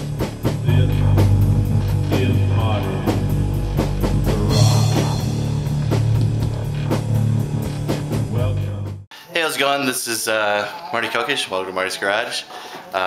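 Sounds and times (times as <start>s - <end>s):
rock music with drums and guitar: 0.0s - 8.8s.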